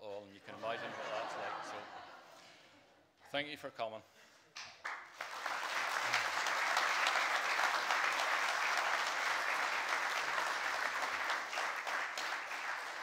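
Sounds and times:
crowd clapping: 4.6s - 13.0s.

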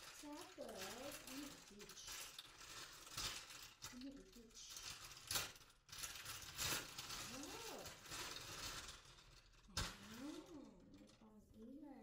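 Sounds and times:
plastic packaging crinkling: 0.0s - 11.7s.

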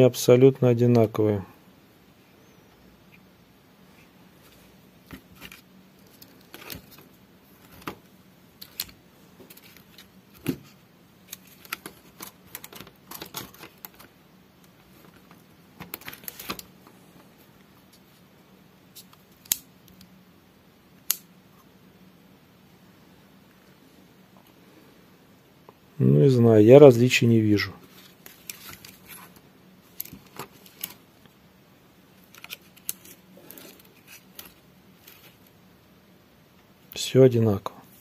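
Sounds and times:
plastic parts clicking and rattling: 5.1s - 8.0s, 8.6s - 16.8s, 27.9s - 31.0s, 32.2s - 35.5s.

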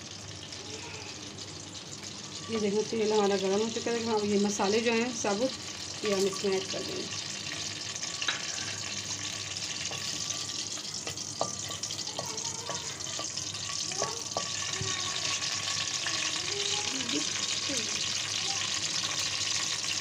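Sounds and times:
spices sizzling in hot oil: 0.0s - 20.0s
spatula scraping a pan: 7.5s - 15.9s.

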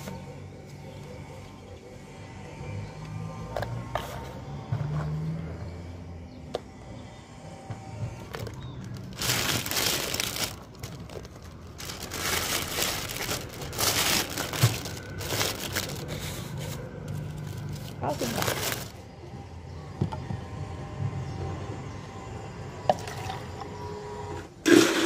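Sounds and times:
plastic bag rustling and crinkling: 8.3s - 19.1s.

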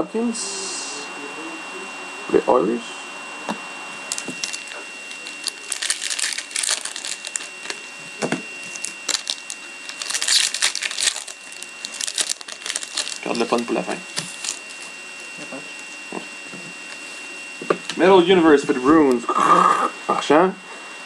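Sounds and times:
foil wrapper crinkling and tearing: 4.0s - 8.0s, 8.6s - 14.9s
cards handled in hands: 4.1s - 7.9s, 8.6s - 14.8s.

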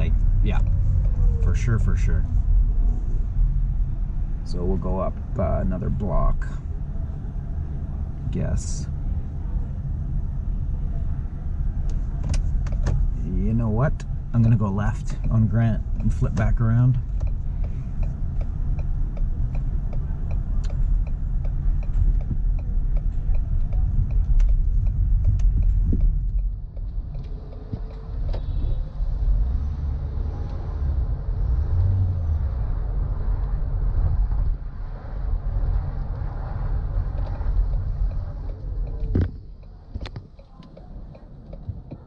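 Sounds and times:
car engine and road rumble: 0.0s - 42.0s
turn signal ticking: 9.7s - 42.0s.

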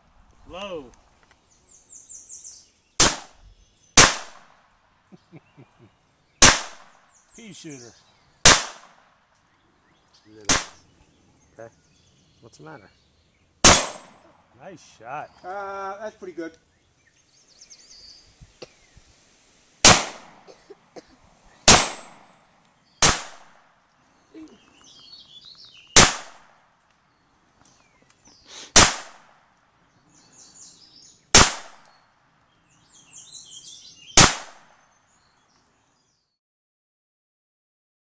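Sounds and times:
pistol shots: 3.0s - 3.4s, 4.0s - 4.6s, 6.4s - 7.0s, 8.4s - 9.2s, 10.4s - 10.8s, 13.6s - 14.2s, 19.8s - 20.5s, 21.6s - 22.3s, 23.0s - 23.7s, 26.0s - 26.6s, 28.7s - 29.4s, 31.3s - 31.8s, 34.2s - 34.8s.

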